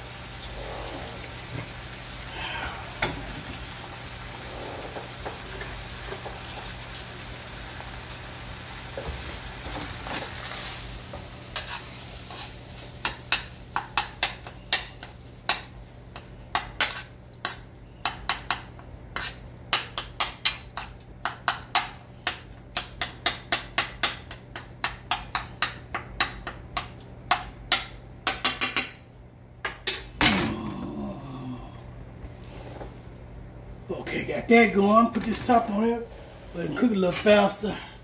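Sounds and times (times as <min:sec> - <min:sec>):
utensil knocking and scraping skillet: 0:11.1 - 0:29.0.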